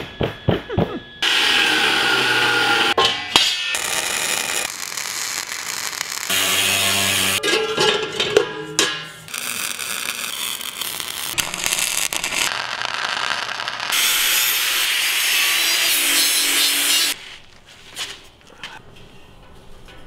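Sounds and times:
angle grinder grinding metal: 0:01.2 - 0:03.0, 0:03.6 - 0:07.4, 0:09.3 - 0:17.2.

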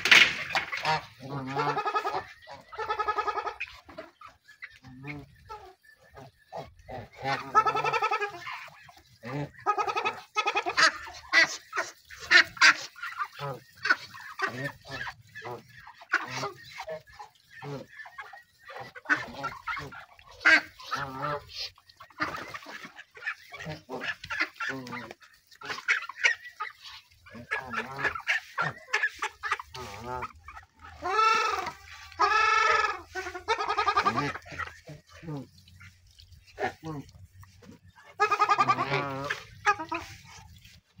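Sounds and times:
geese and ducks honking: 0:00.0 - 0:41.0.

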